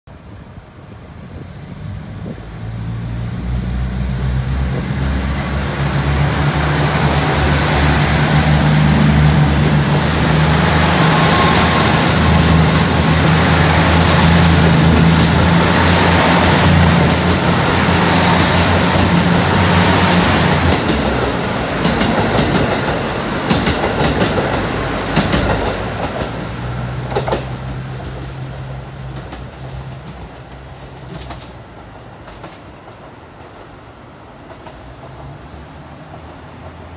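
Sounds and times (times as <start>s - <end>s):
diesel train engines droning: 0.4s - 36.9s
train wheels clicking over rail joints: 12.3s - 27.8s, 29.1s - 33.8s.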